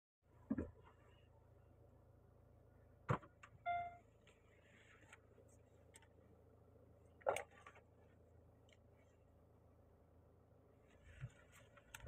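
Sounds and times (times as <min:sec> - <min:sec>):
low steady hum: 0:00.3 - 0:12.0
short electronic beep: 0:03.6 - 0:04.0.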